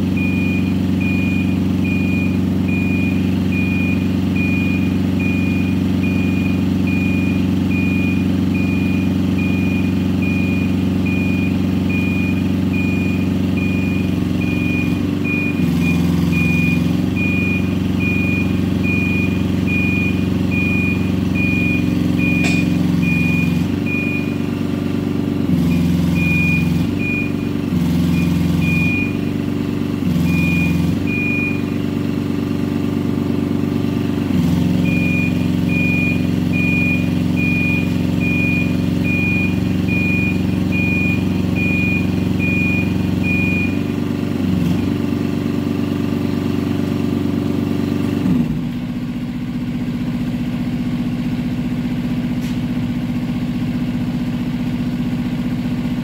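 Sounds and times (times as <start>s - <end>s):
motion alarm beeping: 0.2s - 24.5s, 25.7s - 29.3s, 30.2s - 31.8s, 34.8s - 43.9s
lift engine under hydraulic load: 21.4s - 24.4s.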